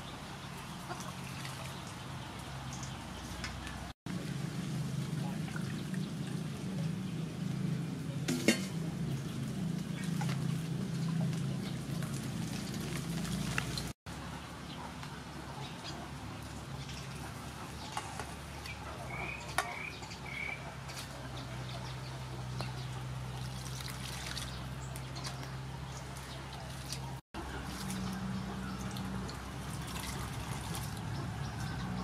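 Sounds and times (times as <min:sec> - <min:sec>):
liquid sloshing and trickling: 0:00.7 - 0:06.8, 0:09.9 - 0:14.0, 0:22.7 - 0:31.8
water pouring: 0:10.0 - 0:14.0, 0:23.2 - 0:31.2
hands kneading wet coconut: 0:22.4 - 0:32.0.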